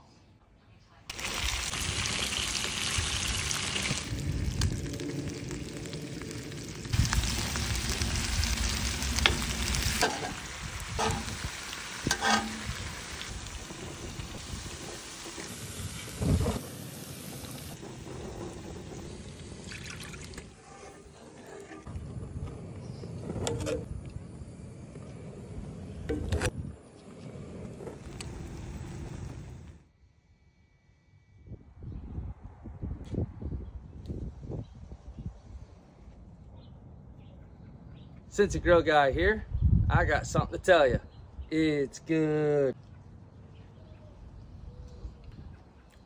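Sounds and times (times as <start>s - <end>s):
chicken sizzling in oil: 1.1s - 20.4s.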